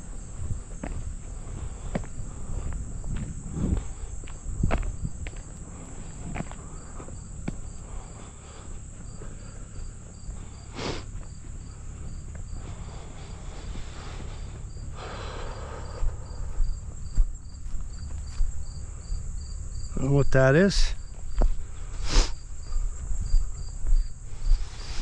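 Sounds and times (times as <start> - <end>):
low steady rumble: 0.0 - 20.0
insects chirping: 0.0 - 25.0.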